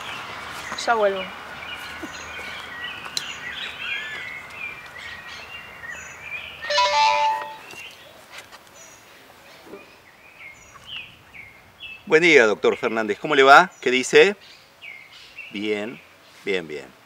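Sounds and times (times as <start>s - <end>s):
birds chirping: 0.0s - 17.0s
mobile phone ring tone: 6.7s - 7.7s.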